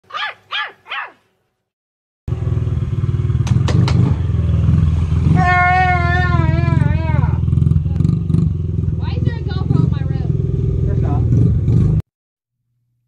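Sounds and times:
short high barks: 0:00.1 - 0:01.3
dirt bike engine running: 0:02.3 - 0:12.0.

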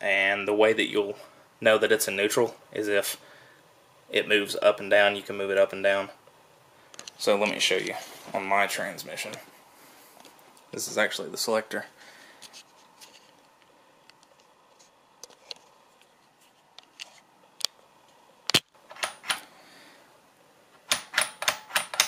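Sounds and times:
metal clicks and knocks: 0:20.8 - 0:22.0.

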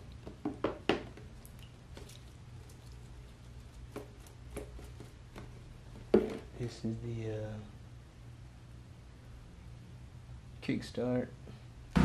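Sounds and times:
low steady hum: 0:00.0 - 0:12.0
liquid pouring and splashing: 0:01.2 - 0:03.7.

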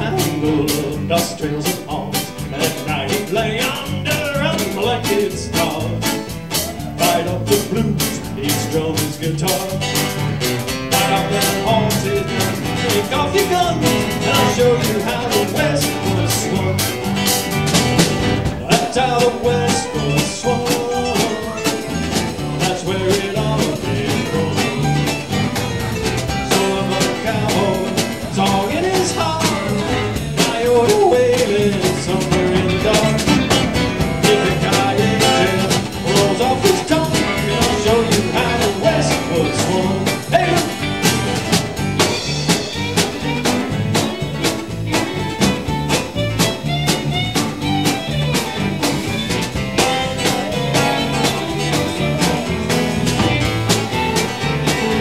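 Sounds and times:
acoustic guitar: 0:00.0 - 0:55.0
drum kit beat: 0:00.0 - 0:55.0
electric bass: 0:00.0 - 0:55.0
electric guitar: 0:00.0 - 0:55.0
fiddle: 0:41.1 - 0:55.0.

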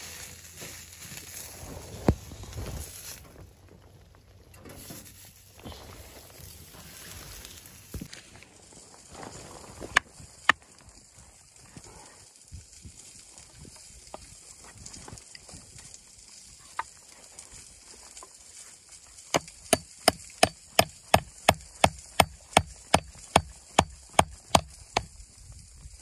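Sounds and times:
hatchet chopping wood: 0:19.3 - 0:25.1.

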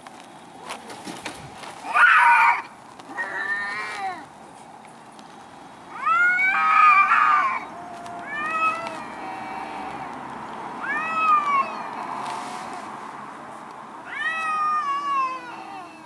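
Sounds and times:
cats yowling in a fight: 0:01.8 - 0:04.3, 0:05.9 - 0:13.0, 0:14.0 - 0:16.0.

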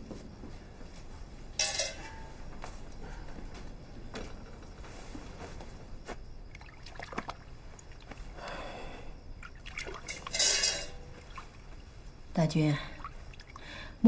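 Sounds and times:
water trickling: 0:06.4 - 0:08.4, 0:09.3 - 0:13.9.

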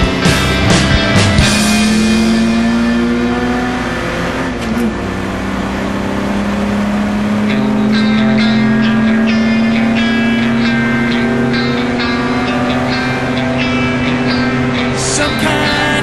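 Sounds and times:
sharp rhythmic sound: 0:00.0 - 0:03.3
car engine at high revs: 0:00.0 - 0:16.0.

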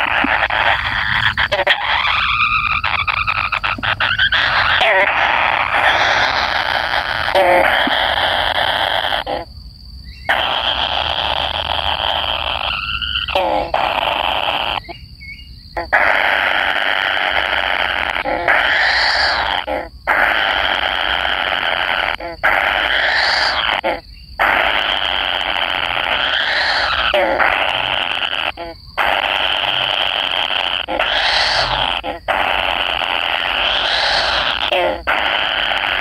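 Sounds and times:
nestlings raspy begging calls: 0:00.0 - 0:09.5, 0:10.1 - 0:36.0.

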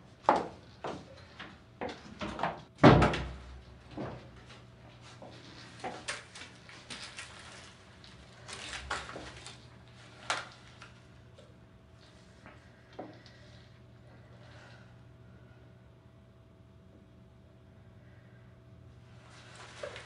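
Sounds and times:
door shutting with a thud: 0:02.3 - 0:04.2
rustling of handled objects: 0:04.9 - 0:11.1, 0:19.2 - 0:20.0.

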